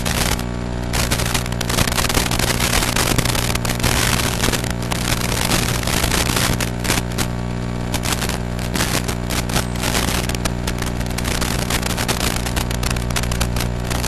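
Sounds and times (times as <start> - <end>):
electrical buzz with static: 0.0 - 14.0.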